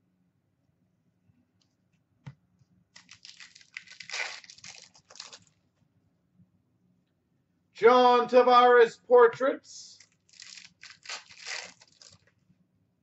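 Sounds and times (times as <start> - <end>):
wrapper tearing and crinkling: 3.0 - 5.6, 10.0 - 12.3.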